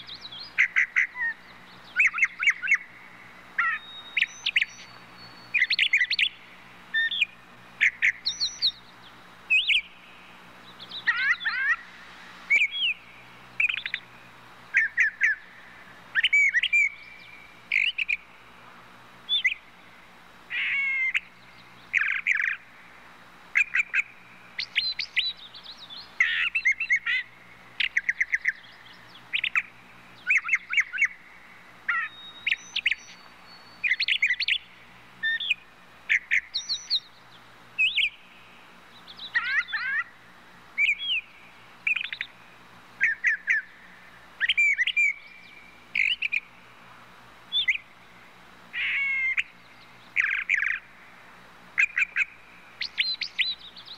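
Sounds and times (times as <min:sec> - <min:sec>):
songbird singing: 0:00.0 - 0:53.9.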